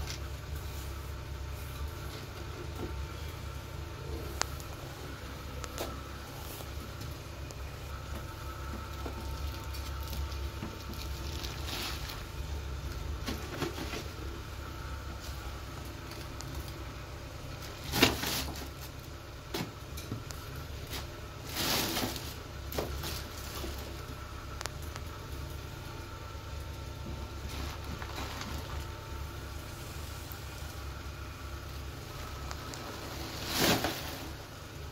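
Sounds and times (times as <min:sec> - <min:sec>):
steady low hum: 0:00.0 - 0:34.9
plastic bag rustling: 0:07.9 - 0:14.3, 0:17.6 - 0:19.7, 0:20.8 - 0:24.2, 0:27.0 - 0:29.8, 0:31.6 - 0:34.9
scoop scraping cat litter: 0:09.8 - 0:12.3, 0:20.9 - 0:24.0, 0:32.5 - 0:34.6.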